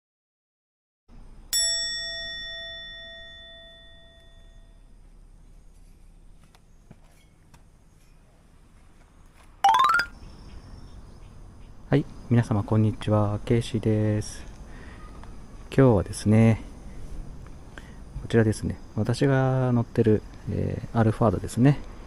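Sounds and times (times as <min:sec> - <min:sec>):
bell-like chime ringing: 0:09.7 - 0:10.1.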